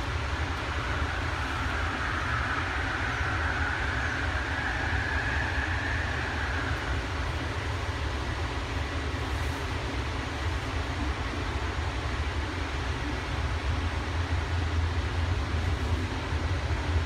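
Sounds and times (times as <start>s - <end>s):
high whine: 0.0s - 9.2s
train car rumbling: 0.0s - 17.0s.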